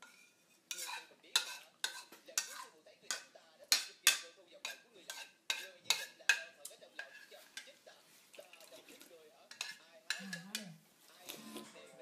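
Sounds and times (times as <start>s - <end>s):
person slurping from glass: 11.2s - 11.8s.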